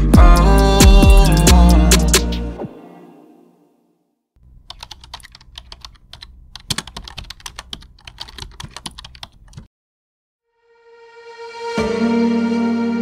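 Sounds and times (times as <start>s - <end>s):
keyboard typing clicks: 4.6s - 9.7s.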